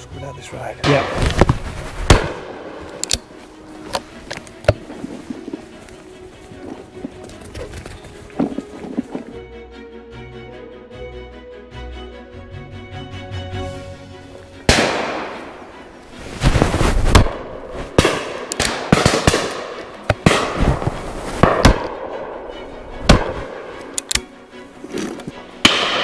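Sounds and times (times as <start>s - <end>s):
shotgun shots echoing: 2.1s - 3.0s, 14.7s - 15.6s, 17.1s - 20.7s, 21.4s - 22.4s, 23.1s - 23.8s, 25.6s - 26.0s.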